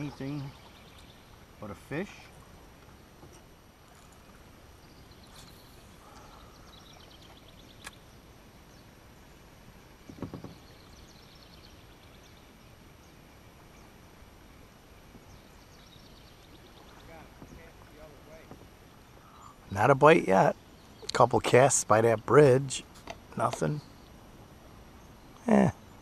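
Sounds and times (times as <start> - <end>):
river hiss: 0.0 - 26.0.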